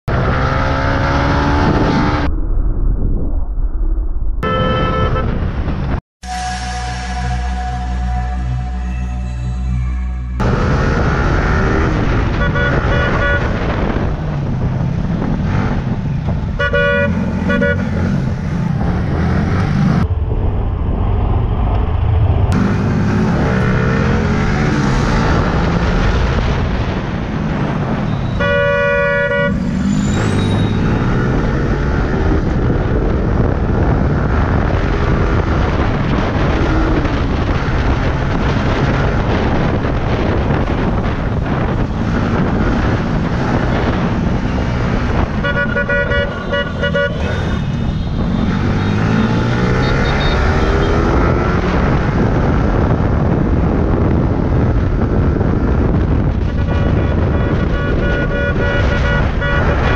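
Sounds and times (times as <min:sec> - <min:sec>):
wind noise: 0:00.1 - 0:59.9
vehicle horns honking: 0:04.4 - 0:05.5, 0:06.2 - 0:14.0, 0:16.5 - 0:18.3, 0:28.1 - 0:31.7, 0:43.5 - 0:51.5, 0:56.6 - 0:59.9
motorcycle engine: 0:04.4 - 0:20.3, 0:21.9 - 0:52.8.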